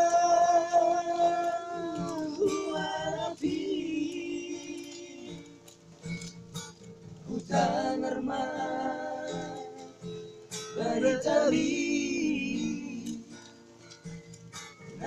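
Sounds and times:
person singing: 0.0s - 5.7s, 7.3s - 10.2s, 10.8s - 13.5s
acoustic guitar strumming: 0.0s - 15.0s.

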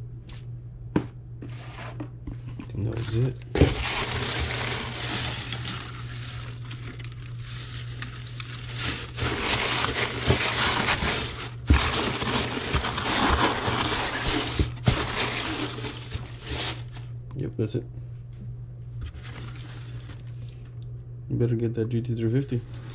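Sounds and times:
steady low hum: 0.0s - 22.9s
shredded paper rustling: 2.8s - 17.1s, 19.0s - 20.3s, 22.6s - 22.9s.

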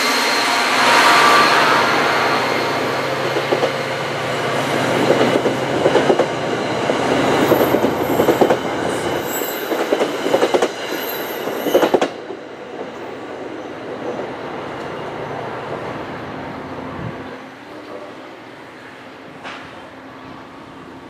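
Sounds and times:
train rumble: 0.0s - 13.2s
train wheels clattering on rails: 3.2s - 15.0s.

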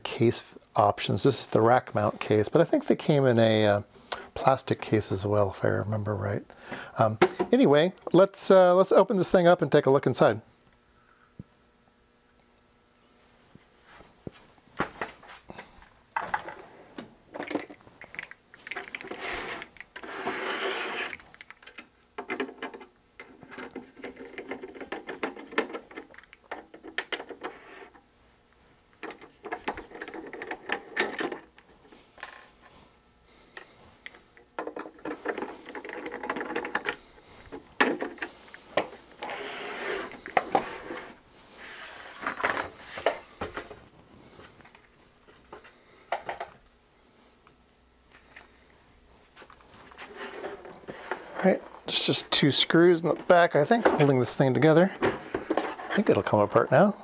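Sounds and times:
objects clattering on a workbench: 14.3s - 27.9s, 34.5s - 43.8s, 45.5s - 46.6s, 55.0s - 56.1s.

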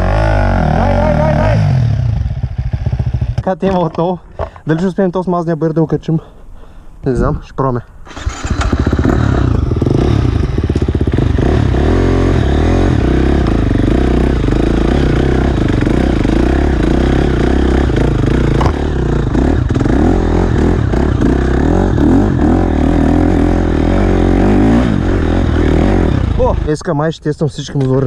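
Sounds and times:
motocross bike engine revving: 0.0s - 3.4s, 8.1s - 26.8s.

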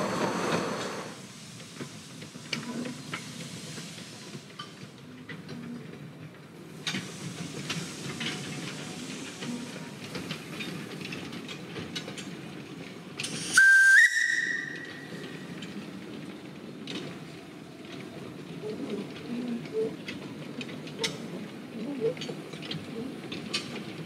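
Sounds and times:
steam locomotive rumbling: 0.0s - 24.0s
steam whistle blast: 13.5s - 15.0s.

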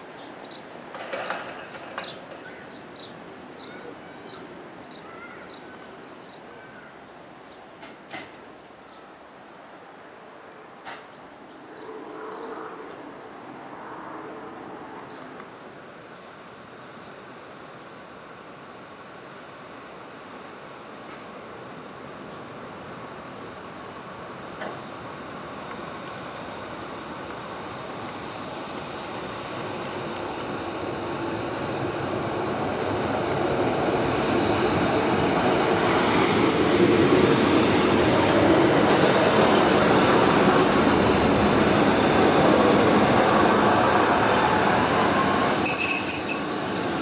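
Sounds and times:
train engine and wheel noise: 0.0s - 47.0s
high brake squeal: 44.9s - 46.8s.

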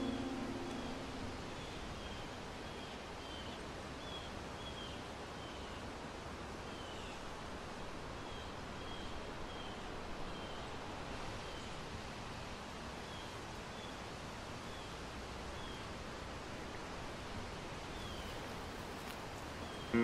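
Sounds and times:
songbird chirping: 0.0s - 3.5s
wind through leafy trees: 0.0s - 20.0s.

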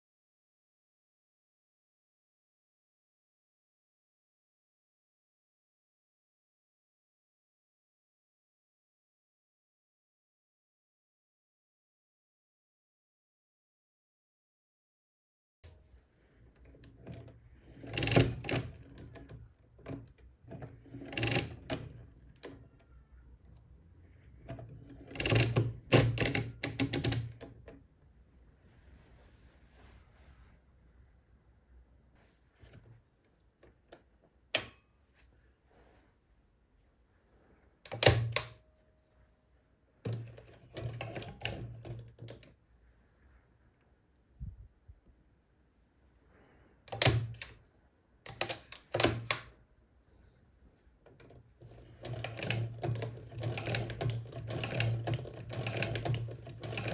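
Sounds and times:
mechanical calculator crank clicking: 16.6s - 23.0s, 24.2s - 27.7s, 40.1s - 42.4s, 46.9s - 47.6s, 48.3s - 49.5s, 51.1s - 56.9s.

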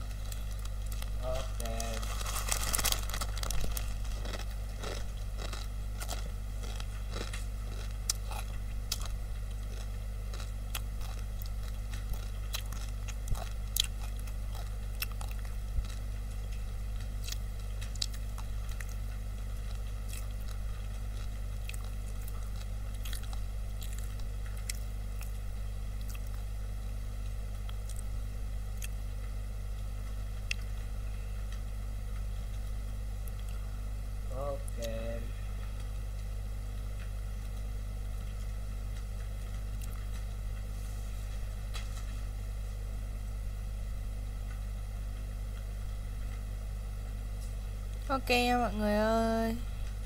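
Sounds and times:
small clicks and crackles: 0.0s - 25.4s
low hum: 0.0s - 50.0s.

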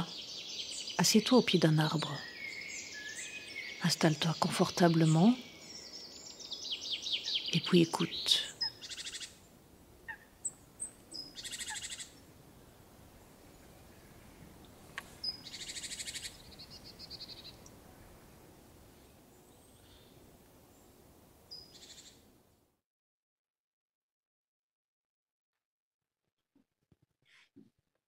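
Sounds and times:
songbird trilling: 0.0s - 9.4s, 10.0s - 12.2s, 14.1s - 18.0s
faint woodland hiss: 0.0s - 22.2s.

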